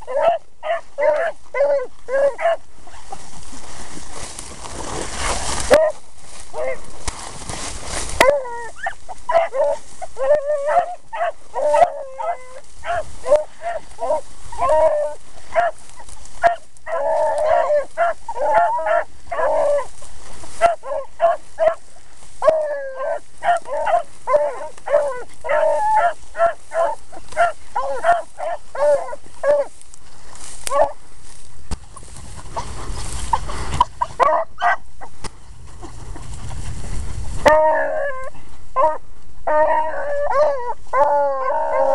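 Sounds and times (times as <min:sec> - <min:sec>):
dogs baying and yelping: 0:00.0 - 0:02.7, 0:05.5 - 0:06.9, 0:07.9 - 0:29.8, 0:30.6 - 0:31.0, 0:32.6 - 0:35.1, 0:37.4 - 0:41.9
rustling: 0:00.0 - 0:41.9.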